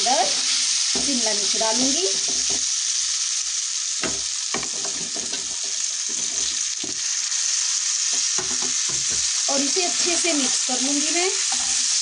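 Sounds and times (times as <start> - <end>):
potatoes sizzling in oil: 0.0 - 12.0
spatula scraping and knocking pan: 2.1 - 2.7, 4.0 - 7.1, 8.1 - 10.6, 11.4 - 12.0.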